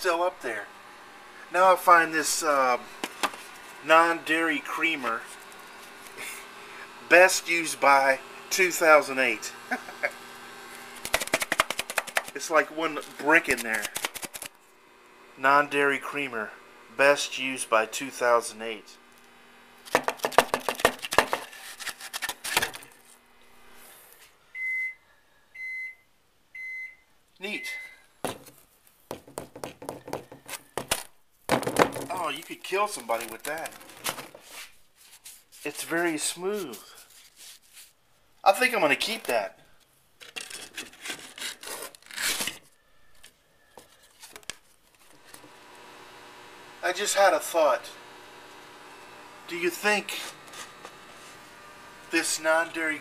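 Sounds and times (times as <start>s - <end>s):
knocking and rattling canister: 11.0s - 12.4s, 19.9s - 21.5s, 29.1s - 30.9s, 31.5s - 32.1s
powder block scraping cardboard: 40.5s - 42.6s, 50.1s - 51.4s.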